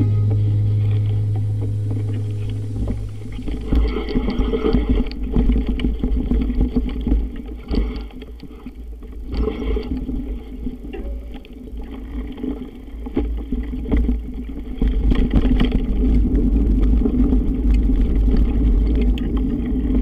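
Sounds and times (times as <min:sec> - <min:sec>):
low background music note: 0:00.0 - 0:06.3
wind buffeting microphone: 0:00.0 - 0:08.2.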